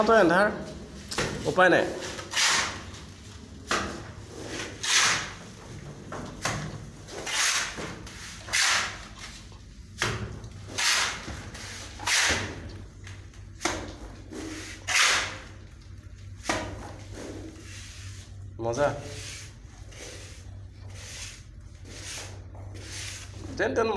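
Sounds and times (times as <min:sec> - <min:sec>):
trowel scraping mortar: 0:07.1 - 0:09.6, 0:19.0 - 0:23.6.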